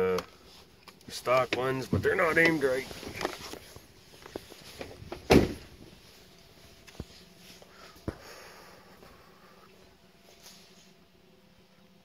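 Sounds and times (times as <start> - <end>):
truck door shutting: 5.1 - 5.8.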